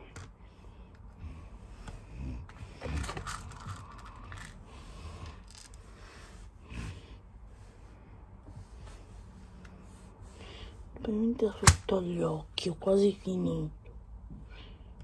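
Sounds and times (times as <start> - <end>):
beads clattering: 2.8 - 4.6.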